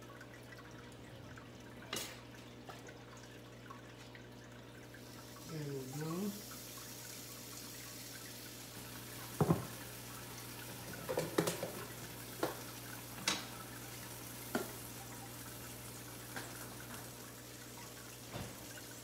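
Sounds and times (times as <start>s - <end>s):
butter sizzling in a pan: 5.0s - 19.0s.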